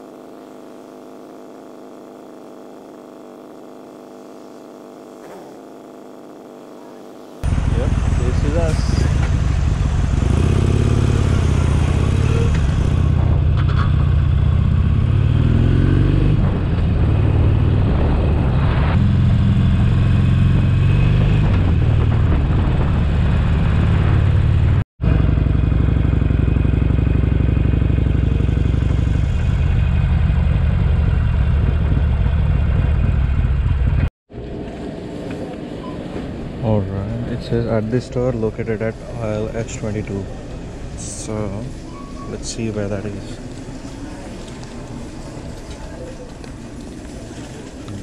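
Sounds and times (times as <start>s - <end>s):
motorcycle engine accelerating: 0.0s - 35.7s.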